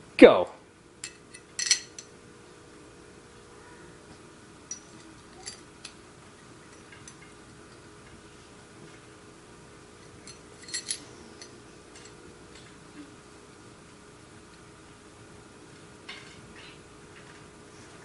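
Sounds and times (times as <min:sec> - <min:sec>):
small steel parts clicking: 0:01.0 - 0:02.1, 0:04.7 - 0:06.0, 0:10.0 - 0:12.6.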